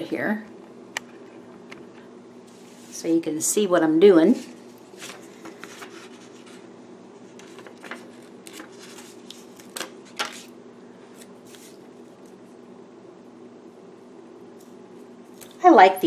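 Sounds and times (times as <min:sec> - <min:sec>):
paper rustling: 0:04.3 - 0:12.4.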